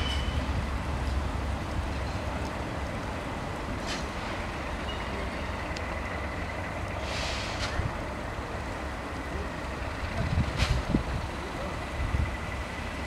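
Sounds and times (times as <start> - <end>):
locomotive engine rumbling: 0.0 - 13.0
short hiss: 3.8 - 4.3, 7.0 - 7.9.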